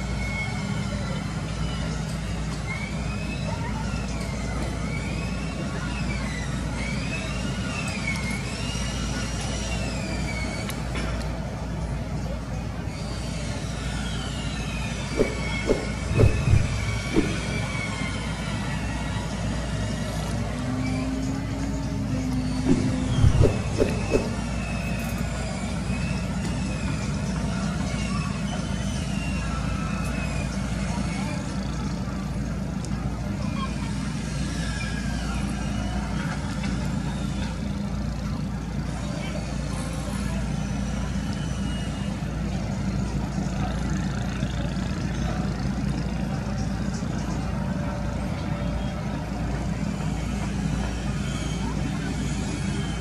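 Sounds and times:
faint high whistles: 0.0 - 11.2, 12.2 - 32.1, 40.0 - 43.1, 46.5 - 53.0
heavy engine droning: 0.0 - 53.0
low engine rumble: 14.6 - 28.4.

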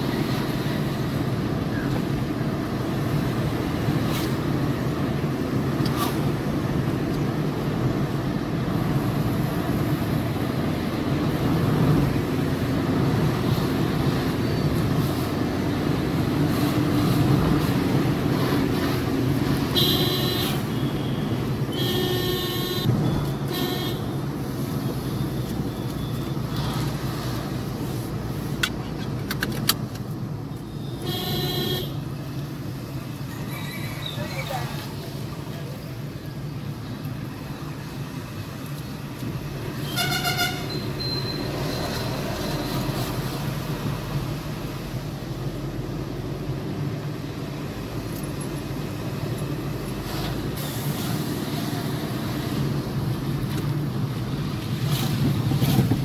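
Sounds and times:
car road and engine noise: 0.0 - 56.0
short high-pitched beeps: 40.7 - 41.5.

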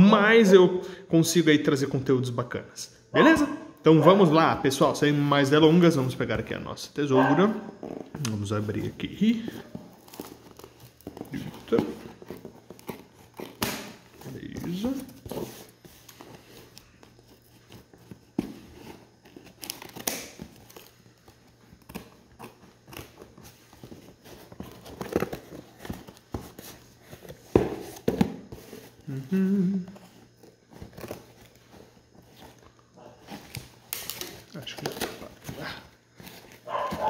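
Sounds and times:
scissors cutting packing tape: 10.0 - 14.0, 19.2 - 23.4
cardboard rustling and tapping: 22.9 - 28.9, 36.2 - 37.0.

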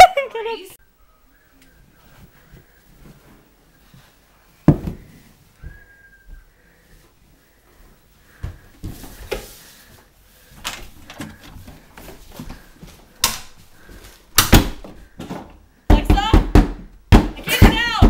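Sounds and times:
rustling and shuffling: 1.4 - 15.8.

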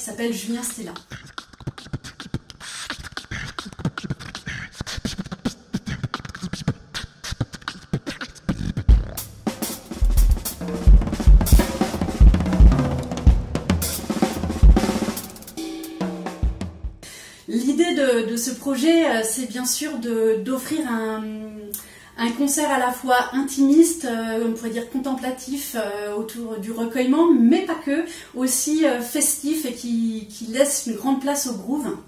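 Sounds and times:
beatboxing into a microphone: 0.5 - 9.2
bass drum beats: 8.7 - 17.0
cymbal strokes: 12.9 - 17.0.

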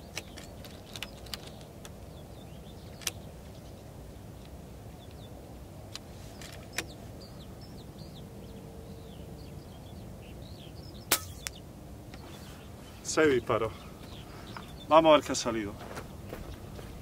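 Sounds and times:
small birds chirping: 0.0 - 17.0
steady outdoor hiss: 0.0 - 17.0
air rifle shot: 11.1 - 11.6.

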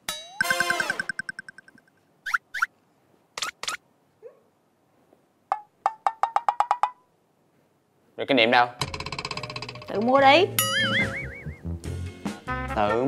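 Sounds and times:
held tone: 0.1 - 1.9, 10.6 - 11.6
ringing tone: 0.1 - 1.9, 10.6 - 11.6
quick rising blips: 0.3 - 2.7, 10.6 - 11.7.

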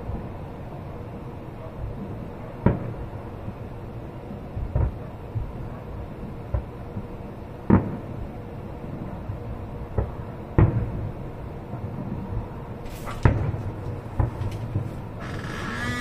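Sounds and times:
distant firework booms: 13.1 - 15.3.

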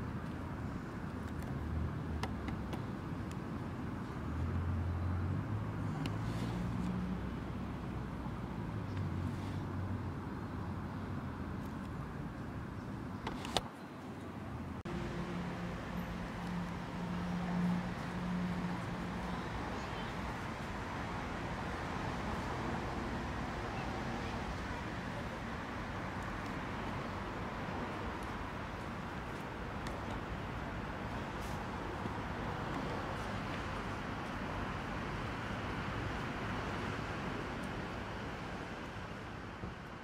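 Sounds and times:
city road traffic: 0.0 - 40.0.

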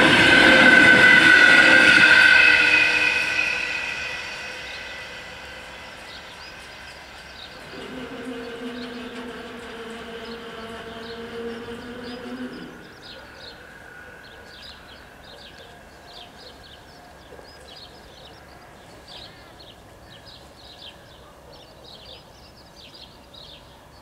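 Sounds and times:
crossing warning bells ringing: 0.0 - 17.2.

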